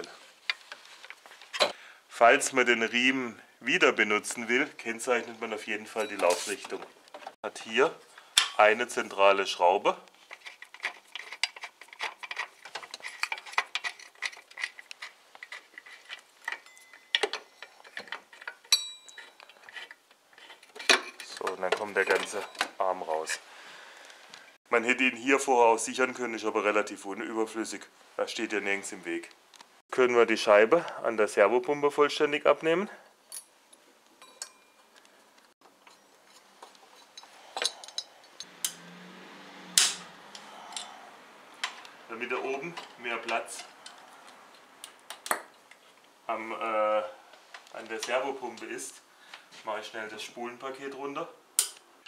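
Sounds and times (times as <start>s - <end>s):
metallic clinks of hand tools: 16.5s - 19.6s, 37.0s - 38.8s
ringing metal clink: 16.6s - 17.9s, 18.6s - 19.4s, 34.2s - 34.9s
small metallic clicks: 51.6s - 51.9s.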